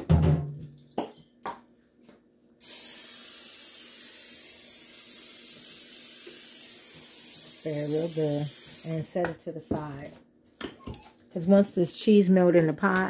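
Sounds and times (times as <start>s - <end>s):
aerosol spray hissing: 2.6s - 9.1s.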